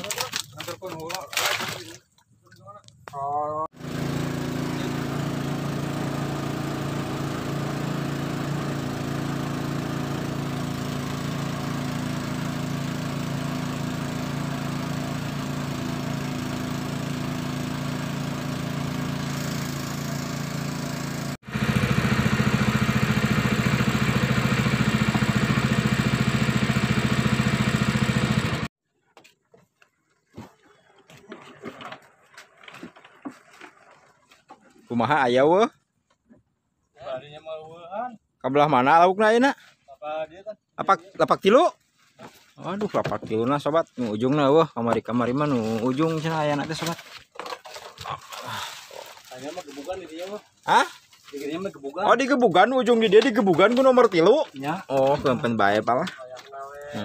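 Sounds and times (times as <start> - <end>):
small boat engine running: 3.7 - 28.7, 45.4 - 51.3, 53.7 - 57.0.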